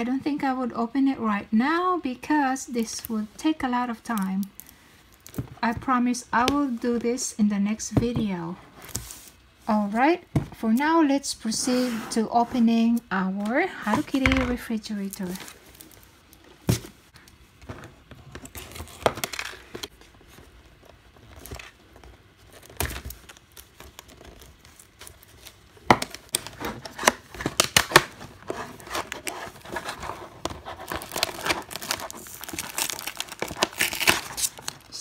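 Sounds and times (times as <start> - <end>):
plastic blister pack crinkling: 21.2 - 35.0.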